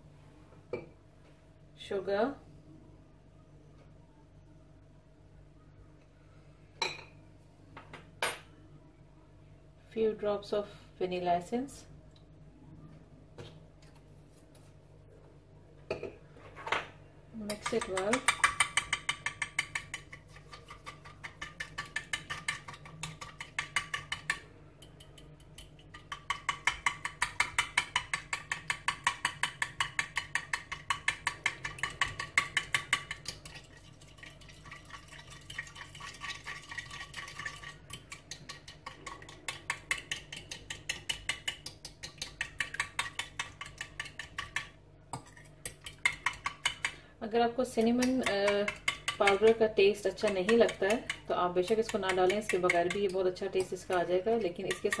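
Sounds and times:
fork beating eggs in glass bowl: 17.4 - 55.0.

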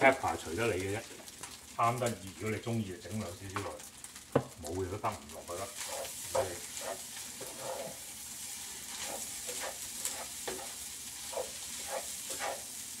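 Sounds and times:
rice sizzling in a pan: 0.0 - 13.0
wooden spatula scraping a pan: 5.3 - 13.0.

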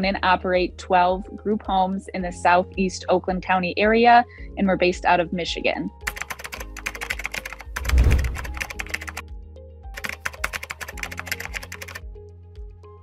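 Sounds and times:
background music with bass pulse: 0.0 - 10.0, 10.9 - 13.0
keyboard typing clicks: 6.1 - 9.2, 10.0 - 12.0
deep whoosh: 7.8 - 8.6.

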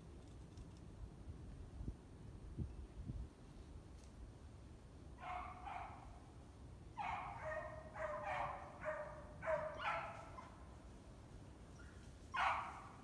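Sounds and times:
animal barking calls: 7.0 - 10.6, 11.8 - 13.0.

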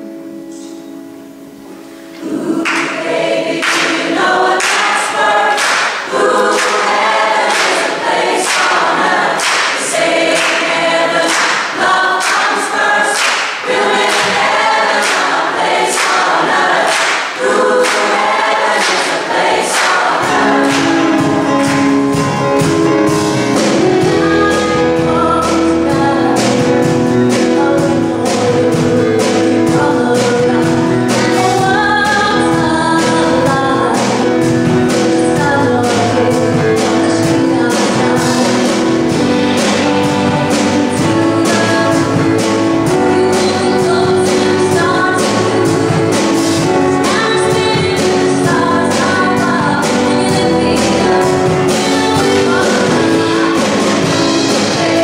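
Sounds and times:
choir singing pop song: 2.1 - 22.4, 23.3 - 55.0
sharp beat: 3.6 - 25.8.

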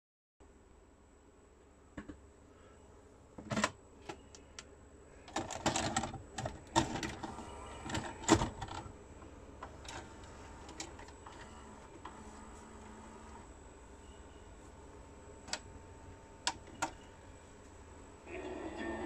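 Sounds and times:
vcr mechanism clicks and clunks: 5.2 - 8.9, 9.6 - 12.2, 16.4 - 17.0
light motor hum: 6.5 - 19.0.

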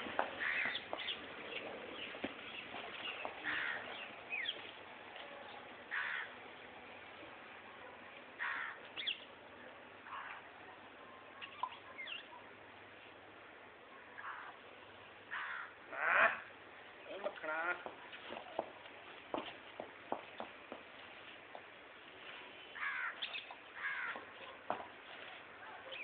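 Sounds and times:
harsh bird caws: 0.4 - 0.8, 3.4 - 3.9, 5.9 - 6.3, 8.4 - 8.8, 15.3 - 16.5, 22.8 - 24.2.

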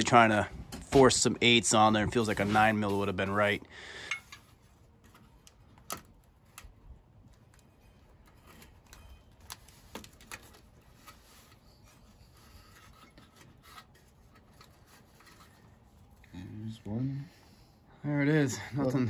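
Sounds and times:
faint rubbing: 9.6 - 17.3.

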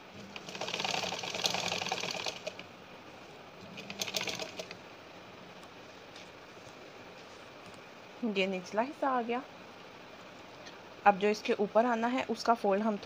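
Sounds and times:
sewing machine stitching: 0.2 - 2.6, 3.7 - 4.8.

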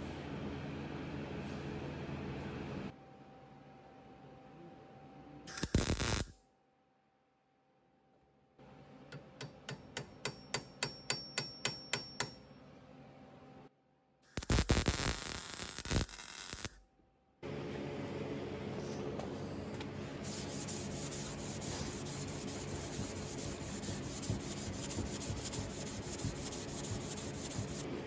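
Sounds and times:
welding arc crackling: 5.5 - 6.3, 14.3 - 16.8
sharp metallic taps: 9.4 - 12.4
loud crackling burst: 14.3 - 16.8
file rasping on steel: 20.6 - 27.9.

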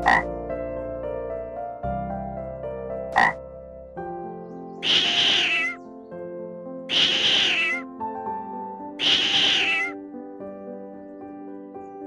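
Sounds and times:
soft background music: 0.0 - 12.0
cat meowing: 5.4 - 5.8, 7.3 - 7.8, 9.0 - 10.0.

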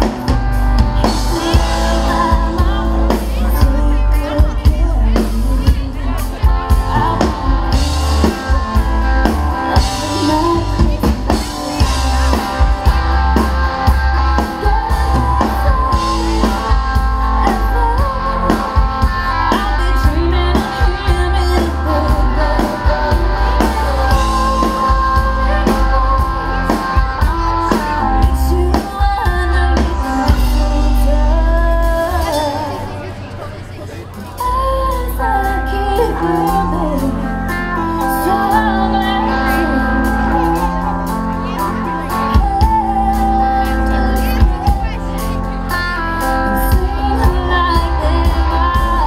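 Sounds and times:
bass beat: 0.0 - 33.4
person singing: 0.0 - 33.4, 34.2 - 49.0
drum kit: 0.0 - 49.0
guitar: 0.0 - 49.0.

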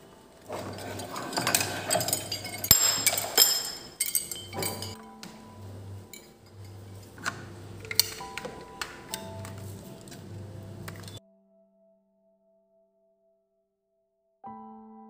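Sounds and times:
trophies clinking and rattling: 0.4 - 11.2.

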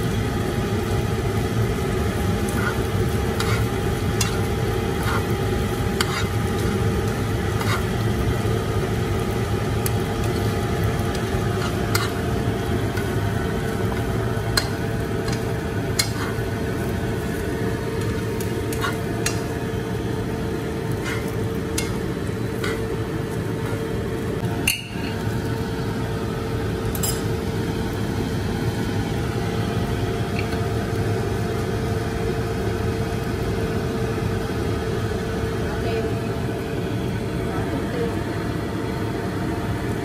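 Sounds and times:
steady droning hum: 0.0 - 40.0
utensils stirring fish floss in pan: 1.6 - 24.2
utensils clicking against pan: 2.5 - 5.3, 5.9 - 6.8, 7.6 - 8.0, 11.1 - 12.2, 13.8 - 16.5, 17.2 - 19.5, 20.9 - 22.9.

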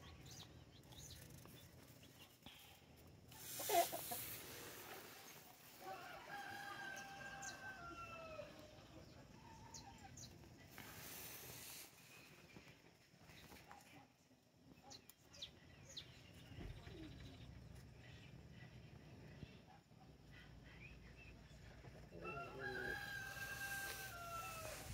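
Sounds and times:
small birds chirping: 0.0 - 24.9
rooster crowing: 5.8 - 8.6, 22.2 - 24.9.

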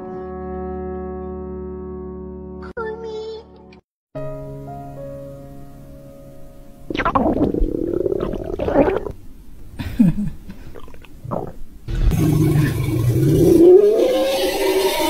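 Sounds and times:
cartoon dinosaur growl: 6.9 - 9.1, 12.1 - 14.6
cartoon stomach gurgling: 6.9 - 9.2, 10.6 - 14.3.

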